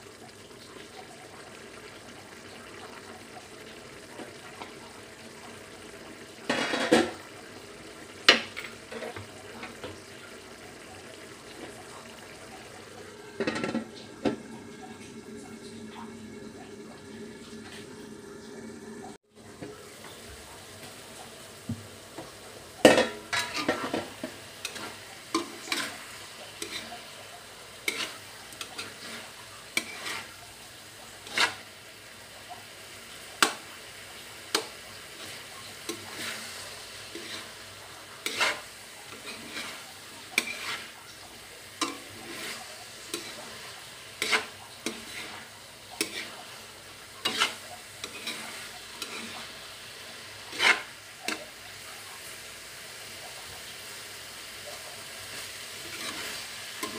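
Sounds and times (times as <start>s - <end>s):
food sizzling: 0.0s - 56.9s
metal spatula scraping a wok: 6.5s - 7.2s, 22.9s - 27.0s, 27.8s - 30.4s, 31.2s - 31.7s, 35.1s - 41.0s, 41.8s - 51.5s, 55.3s - 56.9s.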